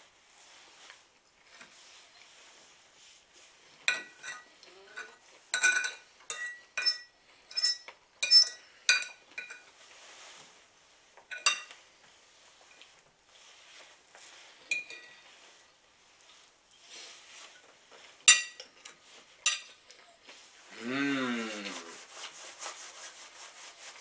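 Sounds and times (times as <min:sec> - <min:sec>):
fork clinking on ceramic plate: 0:03.9 - 0:09.7, 0:14.7 - 0:15.1, 0:18.3 - 0:19.8.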